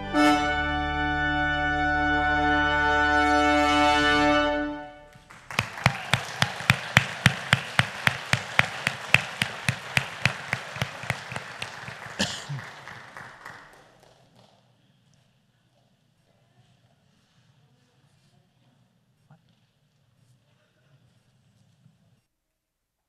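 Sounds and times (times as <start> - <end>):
brass ensemble chord: 0.0 - 5.1
audience applauding: 5.1 - 14.6
nearby person clapping: 5.2 - 14.6.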